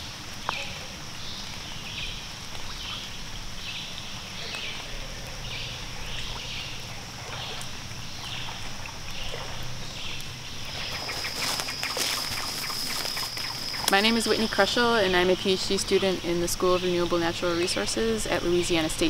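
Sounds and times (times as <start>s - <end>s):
high-pitched insect drone: 6.9s - 18.7s.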